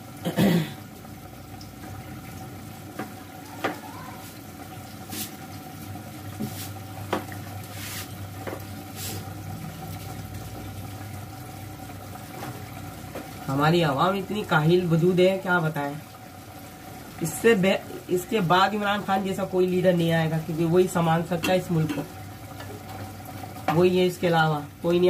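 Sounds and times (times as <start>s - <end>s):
curry bubbling: 0.8s - 25.0s.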